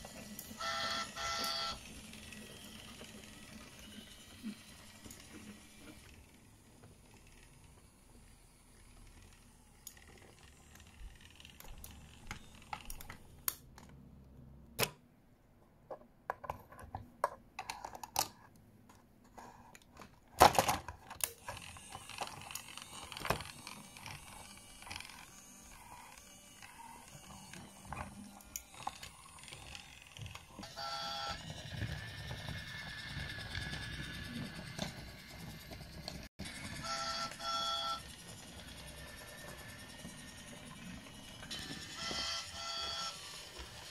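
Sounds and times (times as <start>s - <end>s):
toy train motor whirring: 0.0s - 13.6s, 20.6s - 43.9s
wooden toy trains clicking: 0.0s - 13.6s, 19.3s - 43.9s
toy clatter: 20.4s - 43.9s.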